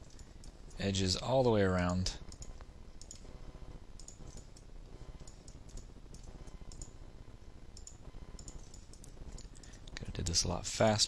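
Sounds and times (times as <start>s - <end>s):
computer mouse clicking: 0.0s - 0.8s, 2.3s - 3.3s, 4.0s - 7.0s, 7.8s - 10.1s.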